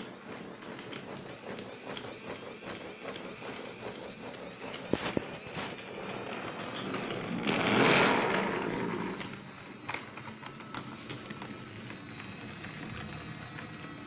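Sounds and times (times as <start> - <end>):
toy electric motor whirring: 0.0 - 14.0.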